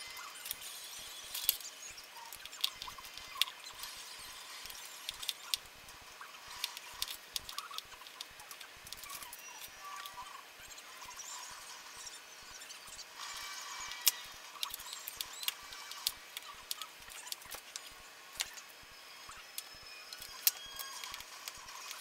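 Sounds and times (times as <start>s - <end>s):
plastic clicks and scrapes: 0.2s - 5.6s, 6.5s - 10.3s, 13.2s - 18.7s, 19.5s - 22.0s.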